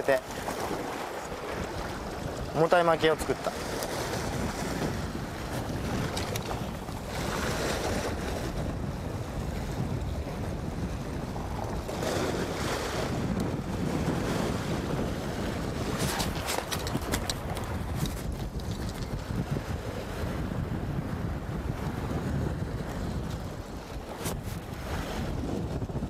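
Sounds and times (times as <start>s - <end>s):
surf washing against rocks: 0.0s - 20.4s
wind buffeting microphone: 0.0s - 26.0s.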